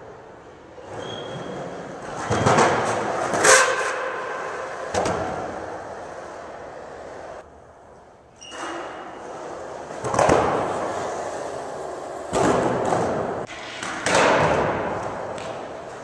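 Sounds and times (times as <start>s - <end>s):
skateboard wheels rolling on concrete: 0.0s - 16.0s
skateboard clack: 2.0s - 7.4s, 9.2s - 16.0s.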